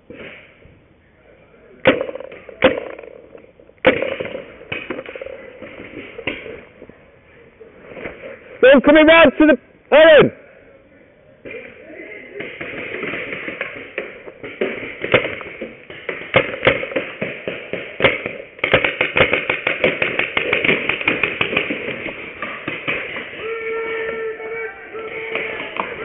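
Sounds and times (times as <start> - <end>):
paintball markers firing: 1.8 - 6.6, 12.4 - 23.6.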